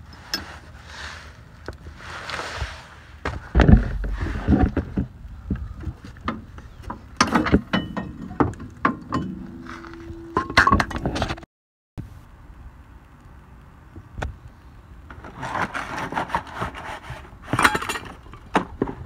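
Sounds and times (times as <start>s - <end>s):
metallic knocks and clanks: 5.8s - 11.4s.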